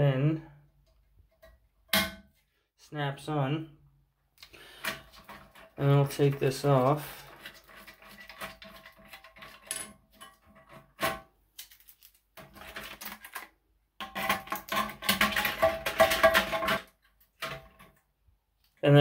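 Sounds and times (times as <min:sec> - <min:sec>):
plastic parts rattling against ceramic: 0:04.5 - 0:11.0, 0:11.6 - 0:18.0.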